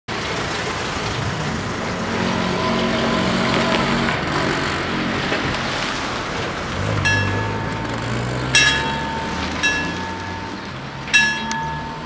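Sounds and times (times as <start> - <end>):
car engine driving past: 0.2 - 12.0.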